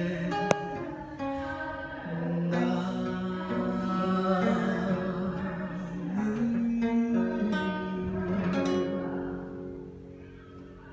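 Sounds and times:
man singing: 0.0s - 10.0s
classical guitar plucked and strummed: 0.0s - 10.8s.

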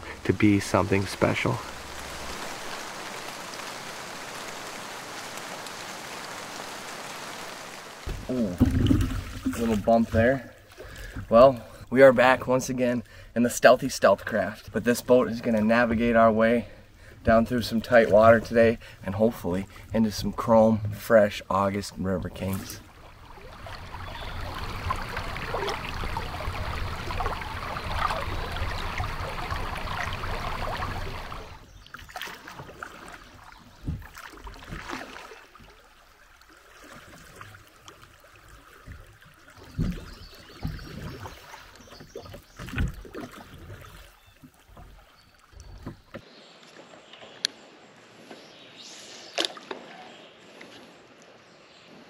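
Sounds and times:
river current rushing: 0.0s - 9.8s, 22.8s - 31.7s
knocks and thumps: 8.0s - 10.3s.

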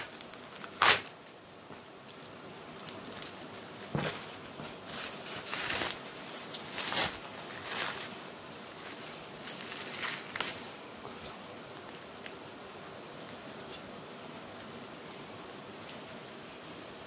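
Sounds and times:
plastic packaging crinkling: 0.0s - 10.8s.

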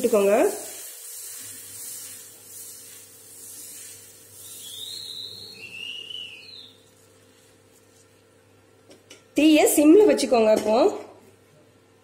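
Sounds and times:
high whistling tones: 4.4s - 6.9s.

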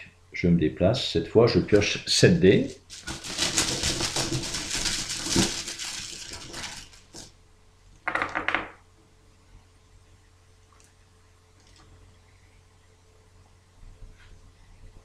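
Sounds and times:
dice clattering onto table: 8.0s - 8.8s.

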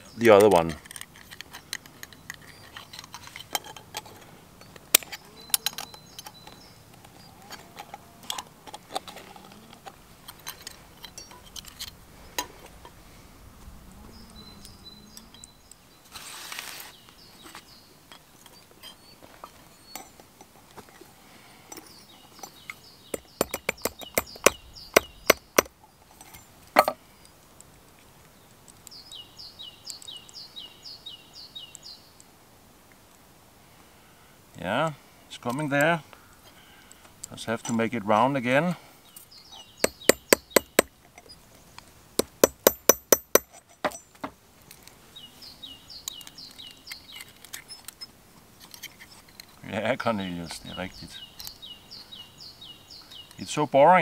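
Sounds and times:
hand tools tapping copper wire: 22.4s - 27.0s, 39.6s - 41.4s, 42.2s - 44.4s.

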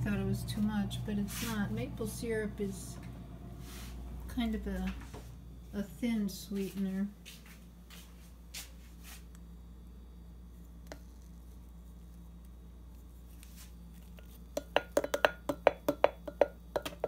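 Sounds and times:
faint low hum: 0.0s - 14.8s
plastic spoon knocking on glass jar: 14.5s - 17.0s.

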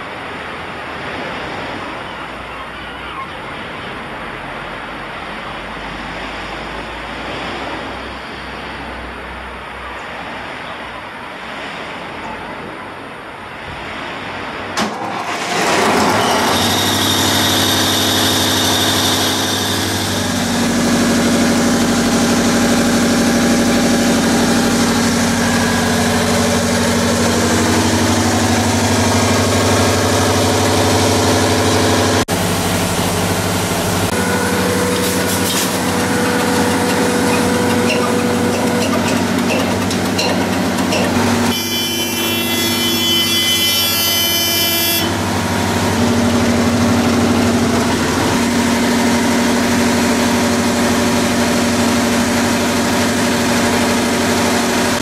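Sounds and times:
water: 0.0s - 55.0s
wind: 0.0s - 55.0s
diesel engine starting and running: 14.7s - 55.0s.

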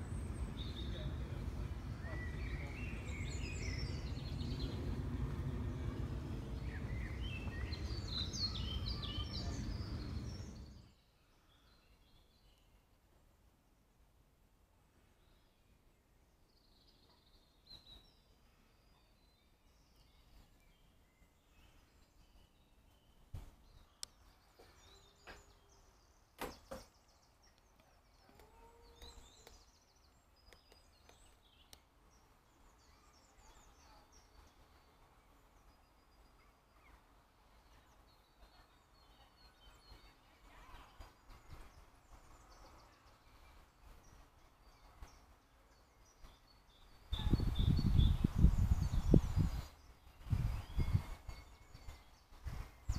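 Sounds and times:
loud low rumble: 0.0s - 10.8s
small birds chirping: 0.0s - 13.1s, 15.0s - 52.9s.

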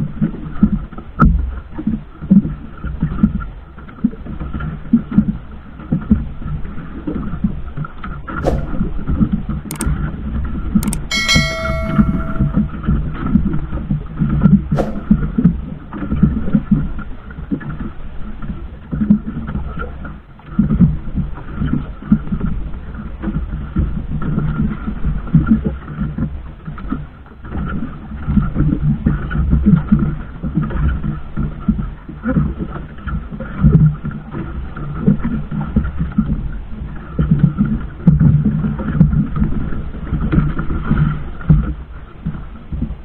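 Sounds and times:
boat engine low rumble: 14.8s - 43.0s.

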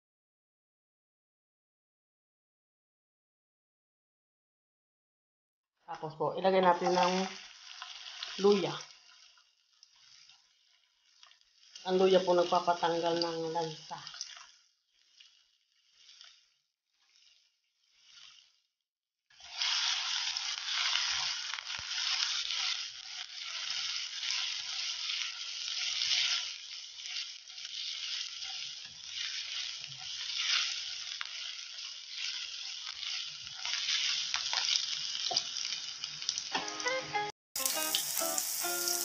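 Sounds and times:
ginger sizzling in hot oil: 5.9s - 37.0s, 37.6s - 39.0s
wooden spatula stirring in pan: 6.8s - 13.3s, 14.0s - 18.6s, 19.3s - 36.4s.

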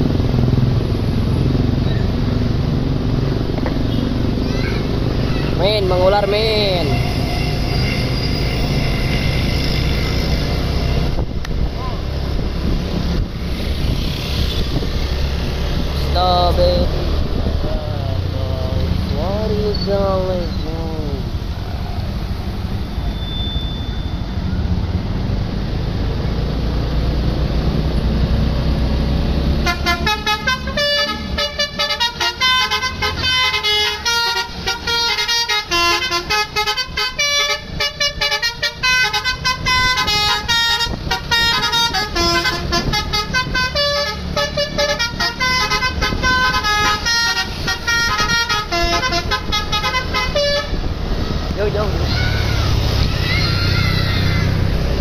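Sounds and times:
bus engine rumble: 0.0s - 55.0s
traffic: 0.0s - 55.0s
multi-tone air horn melody: 6.5s - 11.1s, 29.6s - 50.8s.

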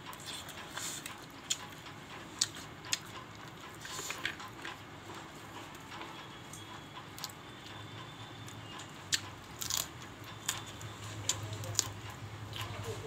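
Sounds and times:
person chewing: 0.1s - 4.8s, 9.1s - 12.7s.

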